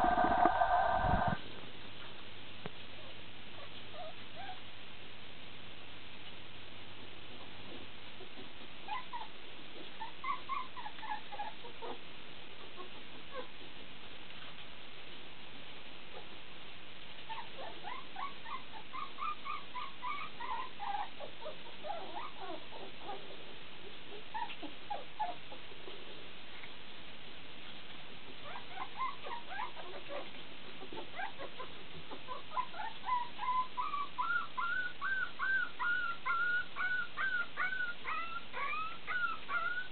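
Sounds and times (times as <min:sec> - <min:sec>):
puppies whimpering and squeaking: 0:00.0 - 0:01.4, 0:08.2 - 0:12.0, 0:12.6 - 0:13.7, 0:17.2 - 0:26.2, 0:28.4 - 0:39.9.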